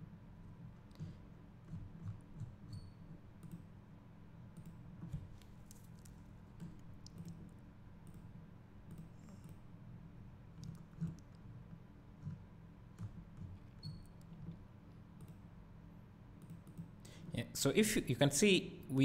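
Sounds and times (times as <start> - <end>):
low steady hum: 0.0 - 19.0
computer mouse clicks: 0.9 - 3.7, 4.5 - 9.6, 10.6 - 11.5, 15.2 - 15.4, 16.4 - 17.0.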